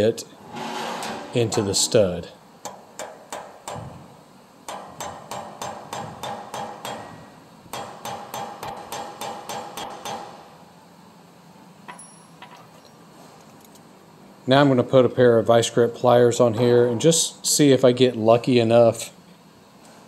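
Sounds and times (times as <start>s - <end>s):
hammer striking metal: 2.6s - 3.9s, 4.7s - 10.4s.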